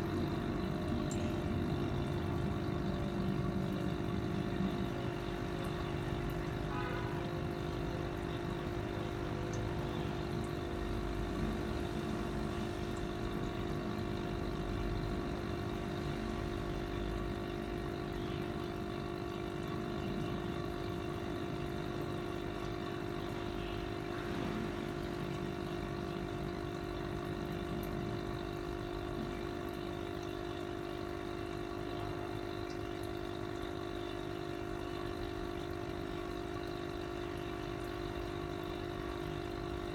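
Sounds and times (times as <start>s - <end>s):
air pump humming: 0.0s - 31.1s.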